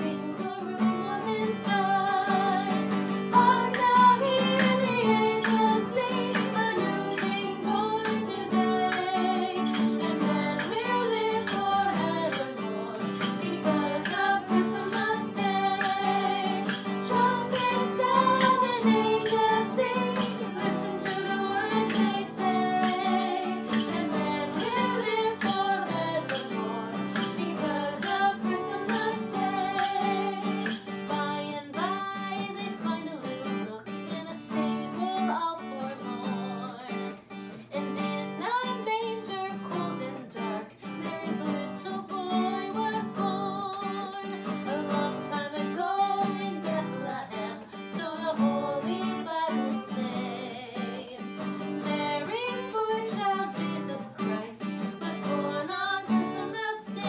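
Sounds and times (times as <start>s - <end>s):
women singing in harmony: 0.0s - 37.1s, 37.8s - 51.2s, 51.8s - 57.0s
strummed acoustic guitar: 0.0s - 57.0s
shaker beat: 2.7s - 31.2s.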